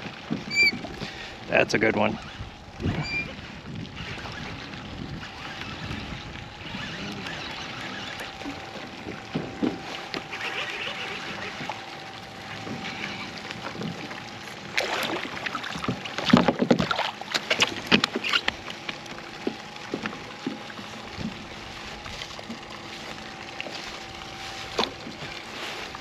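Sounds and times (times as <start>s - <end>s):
water splashing: 0.0s - 26.0s
fish knocking in kayak: 8.1s - 10.4s, 14.8s - 21.5s.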